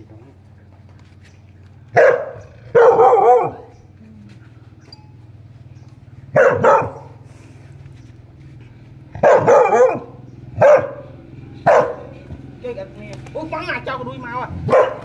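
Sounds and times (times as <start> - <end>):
dog barking: 1.9 - 3.8, 6.3 - 7.2, 9.2 - 12.3, 14.6 - 15.0.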